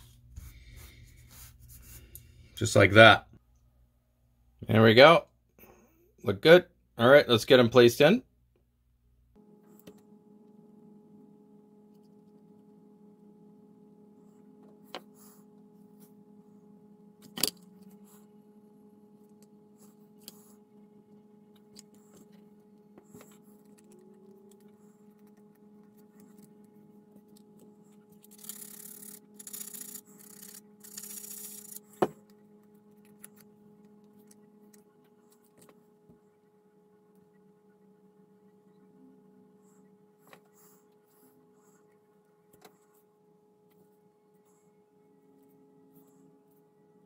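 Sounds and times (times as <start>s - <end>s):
steady low hum: 0.0s - 47.0s
hands rubbing and scraping strips: 27.2s - 31.8s.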